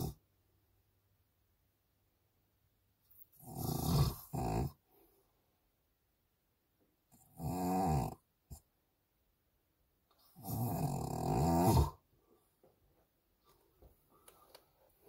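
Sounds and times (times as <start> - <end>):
person snoring: 3.4 - 4.8, 7.2 - 8.2, 10.4 - 12.0.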